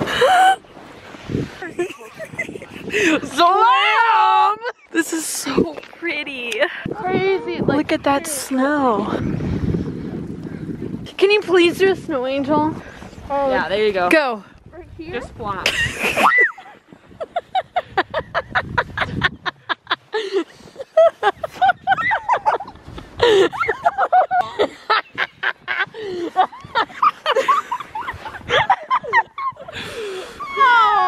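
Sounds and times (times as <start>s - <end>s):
young women laughing: 1.5s - 5.6s, 15.6s - 31.0s.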